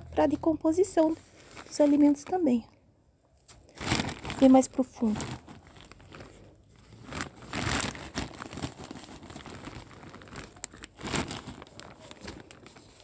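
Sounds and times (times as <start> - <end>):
plastic sack crinkling: 1.0 - 2.6, 3.5 - 13.0
dry leaves rustling: 3.7 - 13.0.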